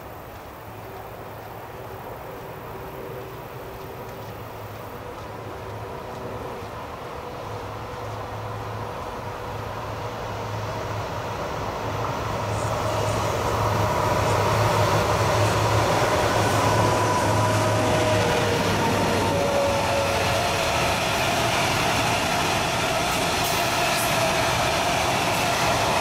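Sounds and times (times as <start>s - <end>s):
freight train passing: 0.0s - 26.0s
locomotive whining tones: 4.5s - 26.0s.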